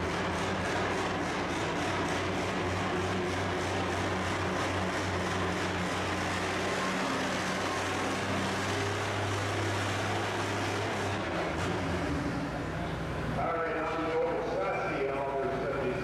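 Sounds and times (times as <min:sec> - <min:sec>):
tractor engine under heavy load: 0:00.0 - 0:16.0.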